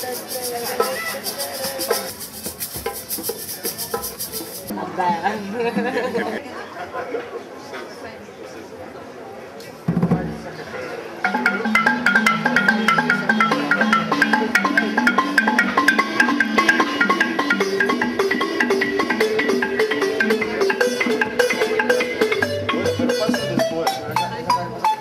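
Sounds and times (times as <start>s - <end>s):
hand drums: 0.0s - 5.2s, 11.2s - 25.0s
xylophone melody: 11.3s - 25.0s.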